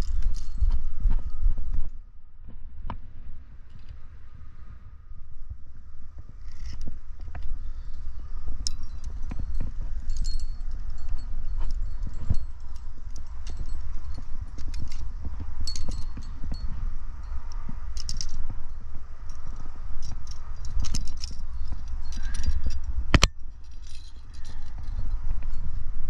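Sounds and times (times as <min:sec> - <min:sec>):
steady low rumble: 0:00.0 - 0:26.0
metal carabiners clinking: 0:06.4 - 0:18.4, 0:19.3 - 0:25.7.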